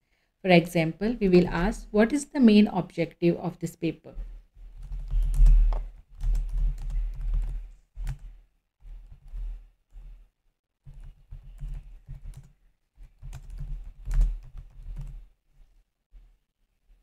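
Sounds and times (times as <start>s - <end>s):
dull typing thud: 4.7s - 9.4s, 10.8s - 15.2s.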